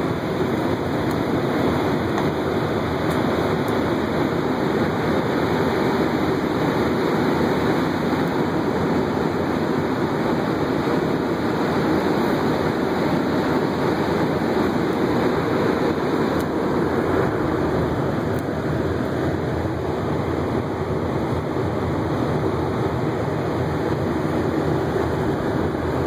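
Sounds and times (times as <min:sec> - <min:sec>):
heaters and fans blowing air: 0:00.0 - 0:26.0.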